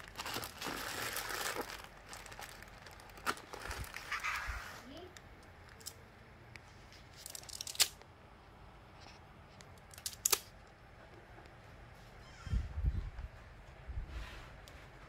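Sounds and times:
plastic film crackling: 0.0 - 6.0, 7.0 - 8.0.

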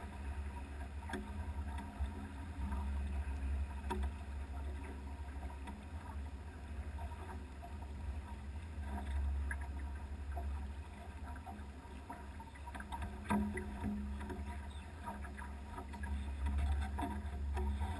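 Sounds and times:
water washing along hull: 0.0 - 17.9.

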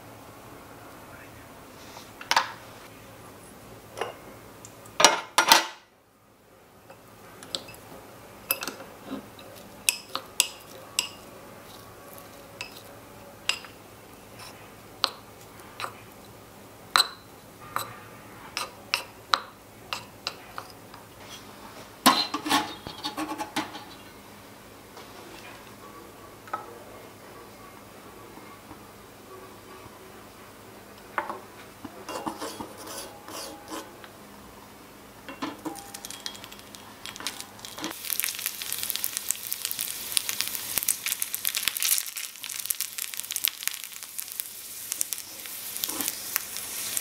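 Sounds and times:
small metal pots clinking: 35.3 - 38.3.

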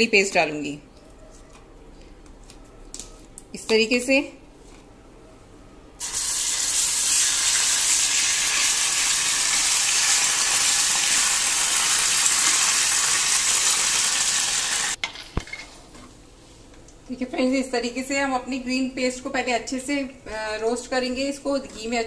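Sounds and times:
paste sizzling in hot fat: 6.0 - 15.0.

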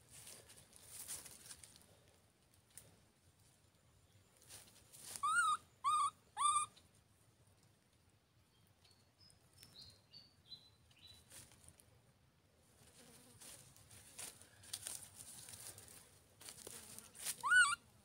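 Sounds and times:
baby monkey coo calls: 5.2 - 6.8, 17.4 - 17.8.

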